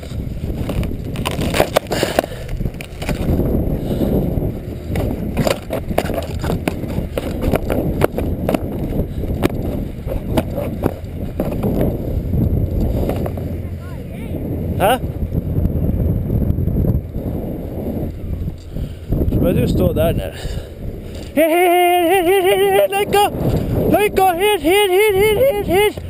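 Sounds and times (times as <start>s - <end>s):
footsteps on rough ground: 0.0s - 13.9s, 20.7s - 21.5s
wind buffeting microphone: 0.0s - 26.0s.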